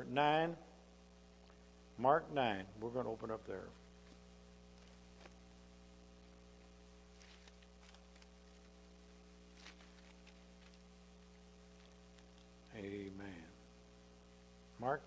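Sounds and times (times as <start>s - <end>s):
electrical mains hum: 0.0s - 15.0s
pages being turned: 4.0s - 5.4s, 6.2s - 11.0s, 11.7s - 12.7s.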